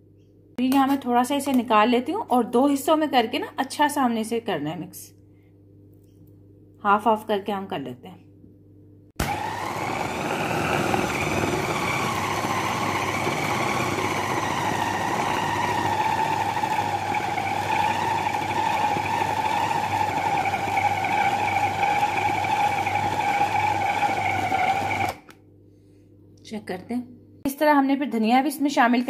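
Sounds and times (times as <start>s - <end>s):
food chopper motor whining: 9.2s - 25.4s.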